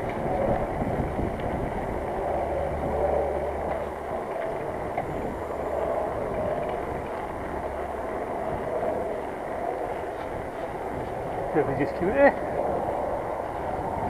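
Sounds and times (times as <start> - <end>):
tyre and wind rush: 0.0 - 14.0
faint clicks: 2.2 - 11.2.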